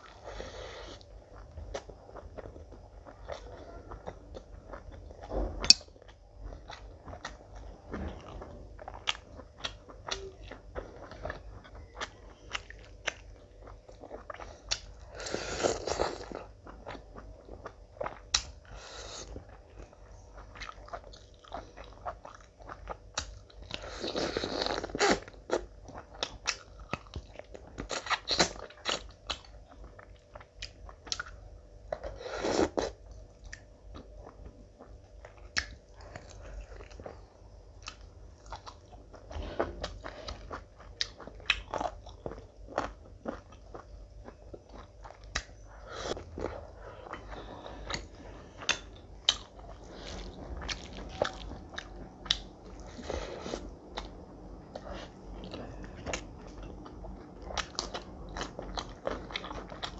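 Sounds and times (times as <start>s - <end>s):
chewing with wet clicks and smacks: 1.1s - 15.1s, 16.2s - 18.7s, 19.3s - 23.8s, 24.8s - 32.1s, 33.0s - 53.0s, 53.7s - 59.9s.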